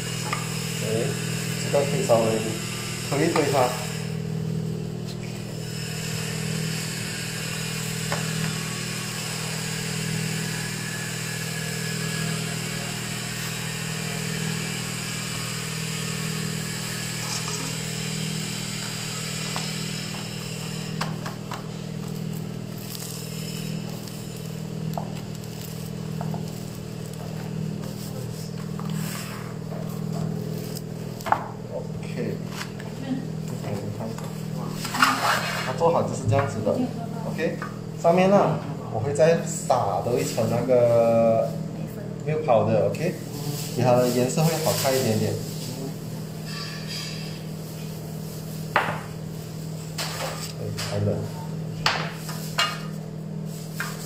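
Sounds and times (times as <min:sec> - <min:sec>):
low mechanical hum: 0:00.0 - 0:54.0
hiss: 0:05.6 - 0:21.1
spatula scraping metal baking tray: 0:28.9 - 0:29.6, 0:34.8 - 0:36.0, 0:46.4 - 0:47.4.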